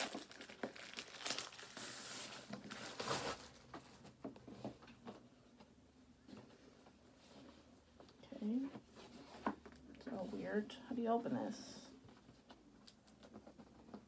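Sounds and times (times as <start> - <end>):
plastic packaging crinkling and tearing: 0.0 - 3.6.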